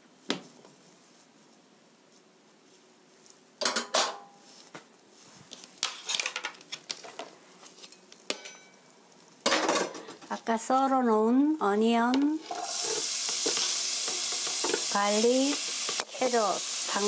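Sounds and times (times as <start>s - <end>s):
dishes and utensils clattering: 3.6s - 4.3s, 9.5s - 10.2s, 12.4s - 14.9s.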